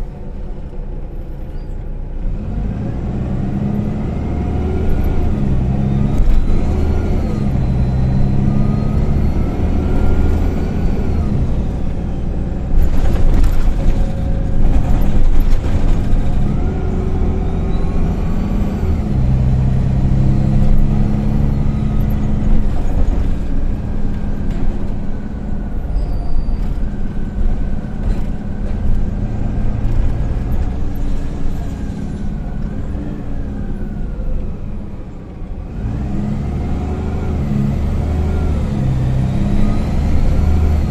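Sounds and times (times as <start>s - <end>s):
bus engine droning: 0.0s - 40.9s
drivetrain whine: 0.0s - 40.9s
bus body rattling and knocking: 9.7s - 18.7s, 19.7s - 32.8s.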